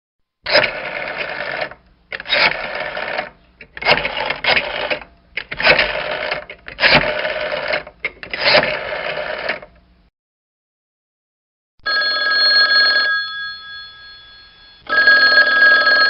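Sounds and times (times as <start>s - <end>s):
phone ringtone ringing: 11.8s - 16.0s.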